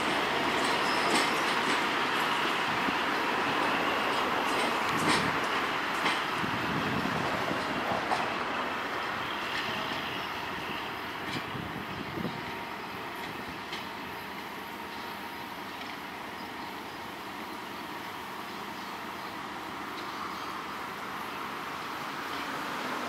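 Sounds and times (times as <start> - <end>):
wheel clacks over rail joints: 0.0 - 14.1, 15.7 - 16.7
train rumbling over rails: 0.0 - 23.0.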